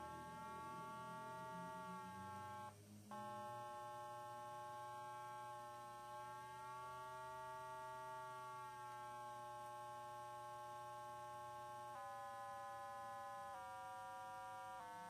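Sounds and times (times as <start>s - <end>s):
electronic buzzing tone: 0.0s - 15.0s
faint low hum: 0.0s - 15.0s.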